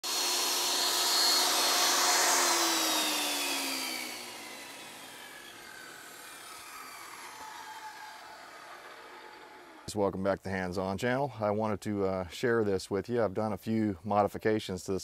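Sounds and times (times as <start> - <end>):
table saw spinning down: 0.0 - 9.9.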